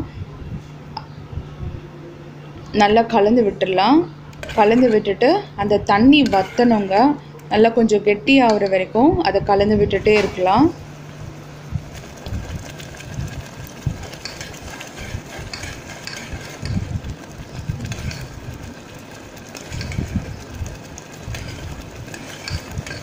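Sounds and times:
spoon scraping a metal pot: 0:04.4 - 0:05.2, 0:06.0 - 0:07.2, 0:14.0 - 0:16.9, 0:17.8 - 0:18.4, 0:19.6 - 0:20.2, 0:21.3 - 0:23.0
mixture simmering: 0:10.1 - 0:23.0.

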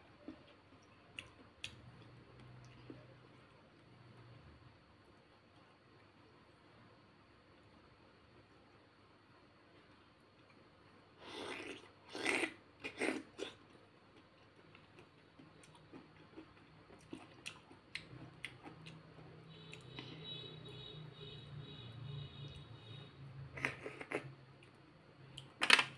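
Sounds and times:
wet chewing: 0:11.5 - 0:19.0.

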